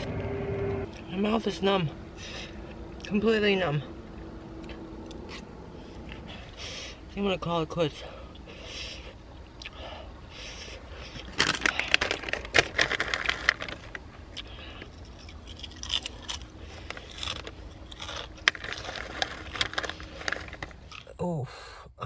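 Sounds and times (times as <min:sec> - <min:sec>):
plastic snack bag crinkling: 0:11.0 - 0:21.1
chips being chewed: 0:11.4 - 0:21.1.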